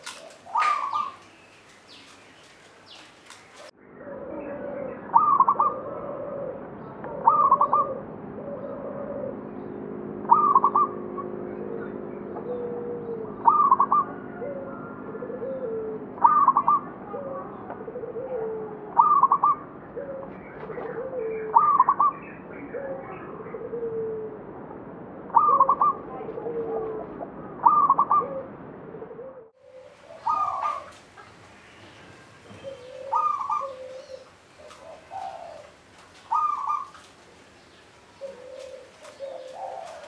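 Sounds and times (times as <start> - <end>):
dove cooing: 0.0 - 2.2, 2.9 - 24.5, 25.3 - 40.0.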